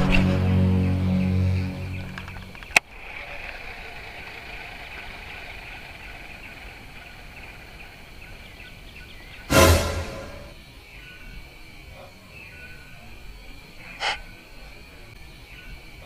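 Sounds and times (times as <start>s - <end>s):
high buzz of insects: 0.3s - 16.0s
short loud burst of noise: 9.5s - 10.6s.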